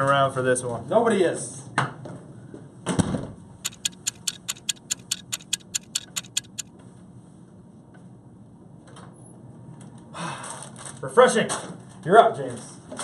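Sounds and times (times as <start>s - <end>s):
fast clock ticking: 3.7s - 6.7s.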